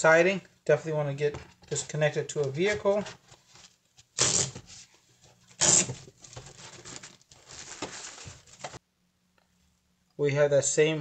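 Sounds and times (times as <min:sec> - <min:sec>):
strap ripping free: 0:04.2 - 0:04.6, 0:05.6 - 0:06.0
plastic bag crinkling: 0:05.6 - 0:08.8.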